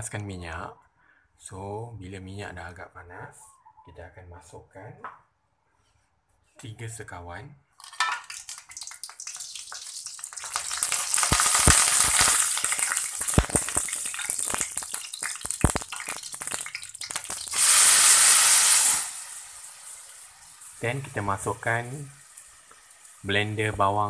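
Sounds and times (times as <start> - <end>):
spices sizzling in hot oil: 7.8 - 23.9
paste poured into hot oil hissing: 8.3 - 23.3.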